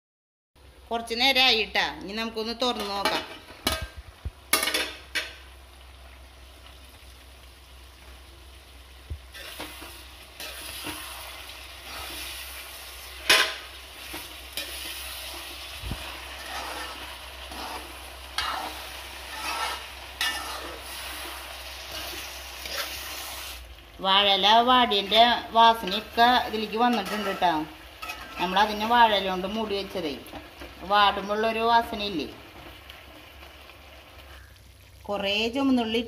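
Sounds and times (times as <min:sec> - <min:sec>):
soft sizzle: 0:00.6 - 0:36.0
metal spoon scraping a pan: 0:09.3 - 0:23.5, 0:25.7 - 0:28.7.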